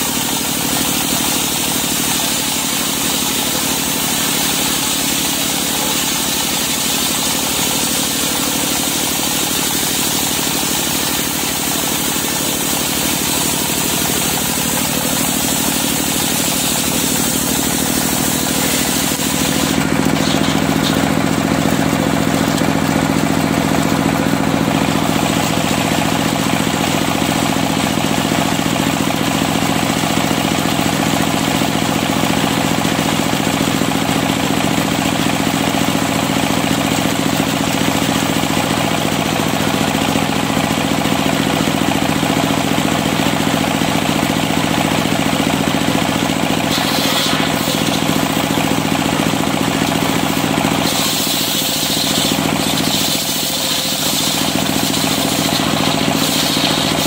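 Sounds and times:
saw cutting wood plank: 0.0 - 26.2, 46.6 - 57.0.

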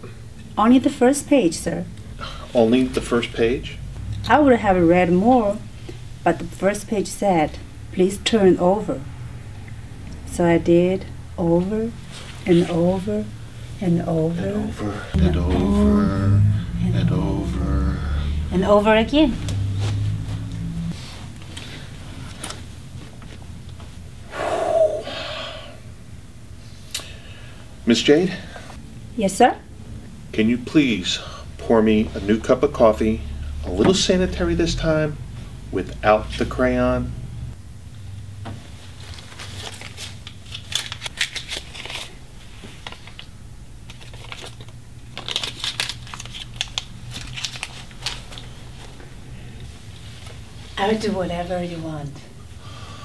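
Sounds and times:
low steady hum: 0.0 - 53.0
person gasping loudly: 24.3 - 25.8
wrapper crinkling: 39.1 - 42.2, 43.9 - 48.6.

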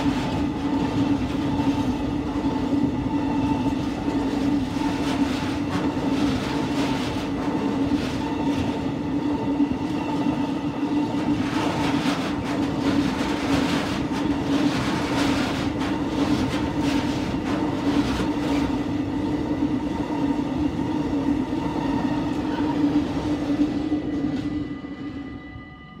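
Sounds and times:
freight train wheels rumbling: 0.0 - 26.0.

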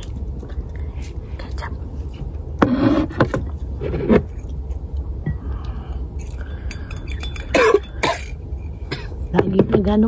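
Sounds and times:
person chewing: 3.5 - 8.3
cup and tableware clinking: 6.6 - 9.0.

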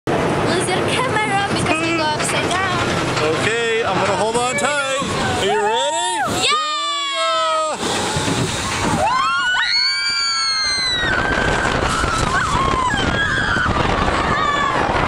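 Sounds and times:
roller coaster rumbling on track: 0.1 - 15.0
girl screaming: 5.9 - 7.7
wind on microphone: 7.8 - 15.0.

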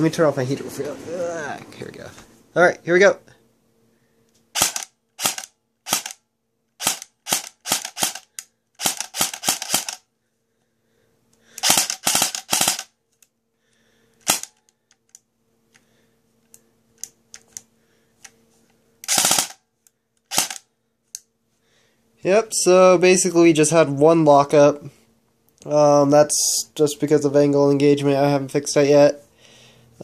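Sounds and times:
airsoft gun full-auto bursts: 4.5 - 6.2, 6.8 - 10.0, 11.6 - 12.9, 14.2 - 14.6, 19.0 - 19.6, 20.3 - 20.6.

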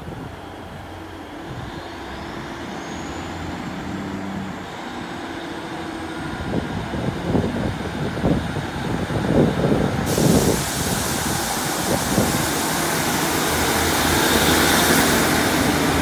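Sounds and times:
train diesel engines running: 0.0 - 16.0.

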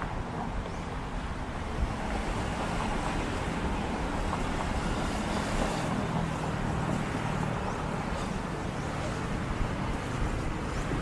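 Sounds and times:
passing vehicles rushing: 0.0 - 11.0.

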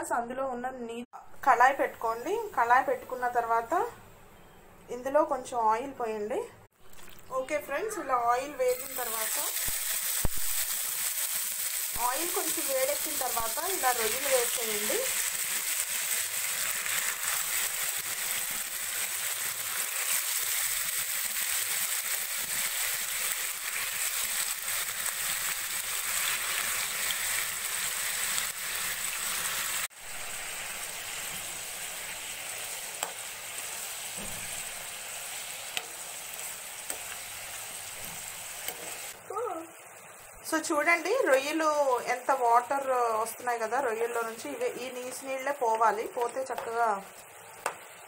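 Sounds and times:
oil popping: 6.8 - 7.3
prawns sizzling in hot oil: 6.8 - 7.8, 8.4 - 48.0.

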